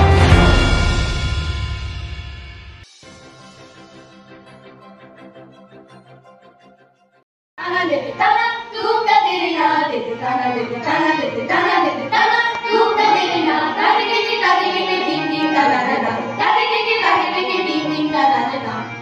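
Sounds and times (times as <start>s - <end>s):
students singing together: 7.9s - 19.0s
harmonium: 10.4s - 19.0s.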